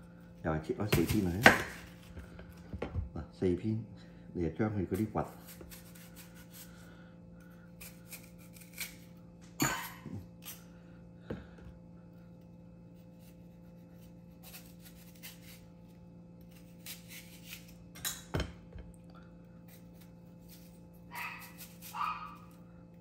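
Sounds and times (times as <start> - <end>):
steady low hum: 0.0 - 23.0
knife scraping apple: 4.8 - 6.9, 7.7 - 10.7, 12.4 - 18.0, 19.6 - 22.6.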